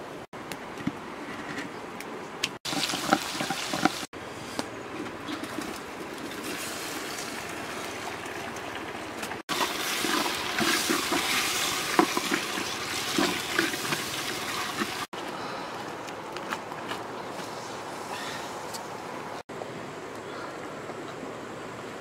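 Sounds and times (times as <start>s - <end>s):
food sizzling in a pot: 2.7s - 4.1s, 9.5s - 15.1s.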